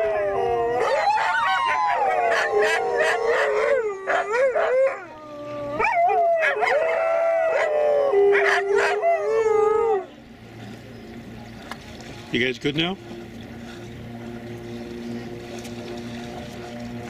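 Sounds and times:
dogs howling: 0.0s - 10.2s.

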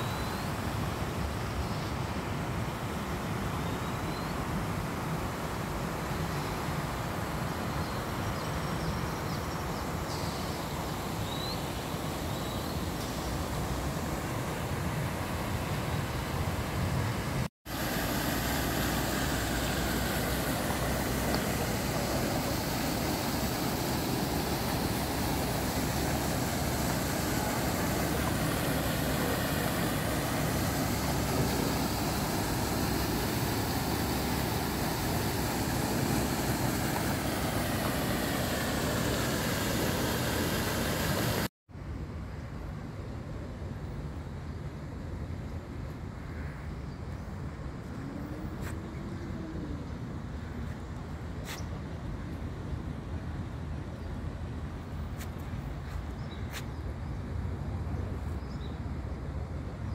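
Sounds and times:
fountain water splashing: 0.0s - 41.5s.

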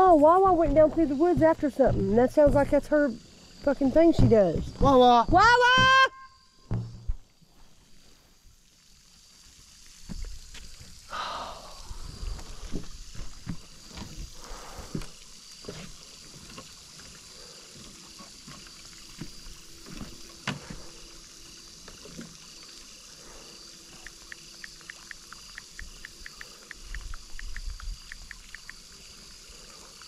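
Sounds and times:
footsteps on wooden boards: 0.1s - 3.0s, 3.7s - 6.0s, 12.5s - 16.7s.

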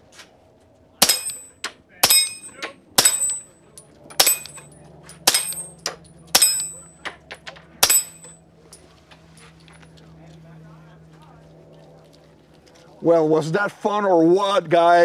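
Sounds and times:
metallic clang of steel target: 1.0s - 7.0s, 7.8s - 8.4s
suppressed pistol shots: 4.2s - 4.6s.

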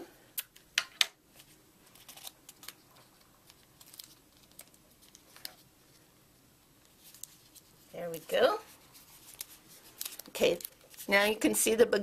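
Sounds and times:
paper crinkling: 1.4s - 6.1s, 6.8s - 11.4s.

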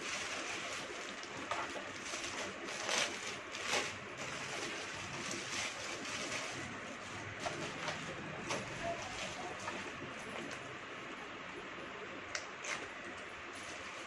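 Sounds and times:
packaging rustling: 0.0s - 10.6s.

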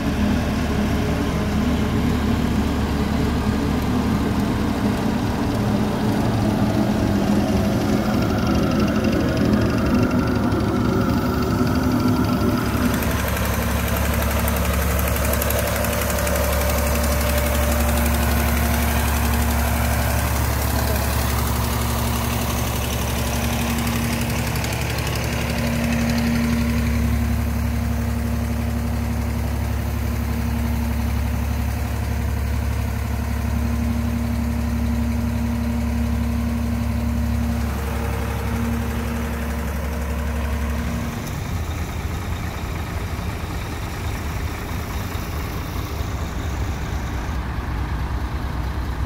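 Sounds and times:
rough diesel engine idling: 0.0s - 49.0s
truck engine idling with hum: 0.0s - 49.0s.

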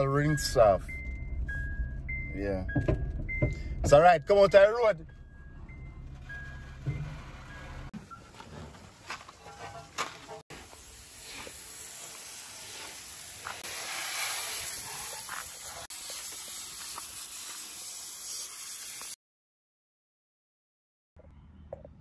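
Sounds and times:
water spraying from a hose: 10.5s - 19.2s.

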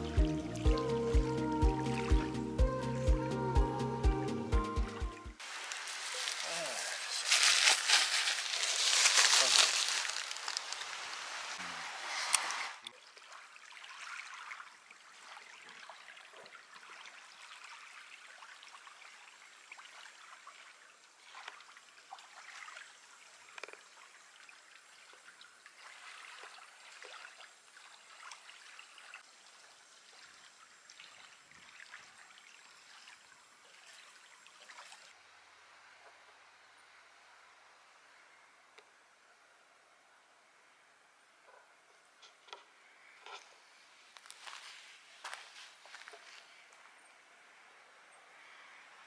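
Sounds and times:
small waves lapping on shore: 5.4s - 35.2s.

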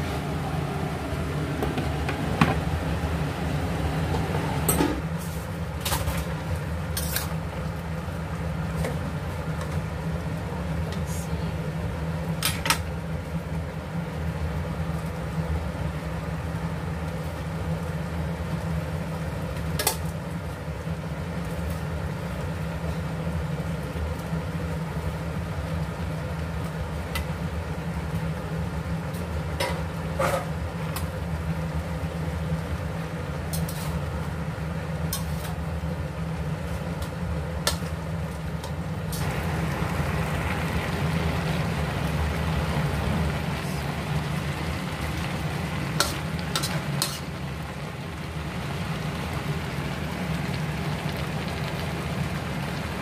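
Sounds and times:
pan sizzling: 0.0s - 5.6s, 30.8s - 53.0s
low mechanical hum: 0.0s - 53.0s
utensils clinking against pan: 46.0s - 47.2s.

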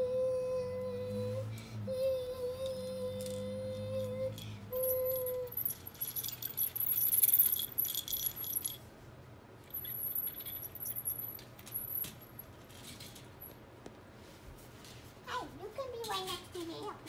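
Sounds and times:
plastic toy pieces rattling: 4.0s - 8.8s, 9.7s - 13.3s.

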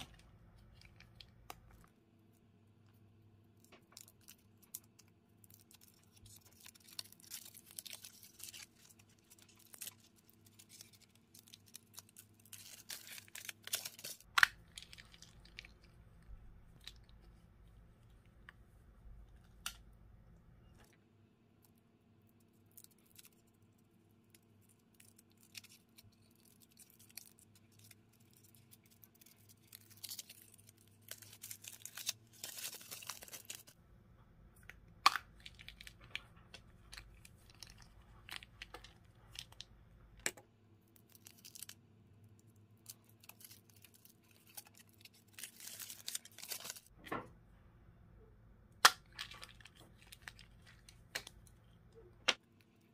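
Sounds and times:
foil wrapper crinkling and tearing: 3.7s - 17.3s, 24.6s - 33.8s, 35.0s - 41.8s, 42.4s - 46.9s, 48.8s - 51.8s
chocolate shell crunching: 3.7s - 17.6s, 34.6s - 47.0s, 48.8s - 52.9s.

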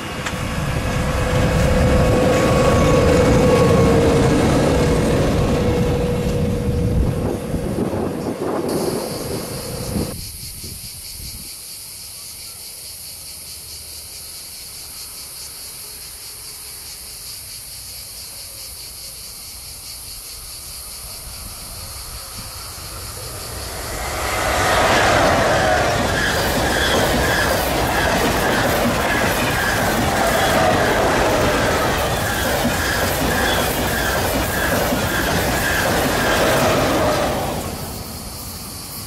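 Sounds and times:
train rolling past: 0.0s - 10.3s, 20.1s - 39.0s
cicadas buzzing: 0.0s - 39.0s
train wheels squealing: 0.9s - 10.7s, 20.3s - 39.0s.

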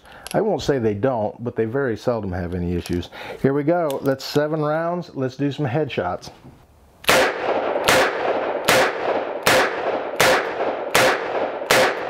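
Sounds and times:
revolver shots with echo: 7.1s - 12.0s.

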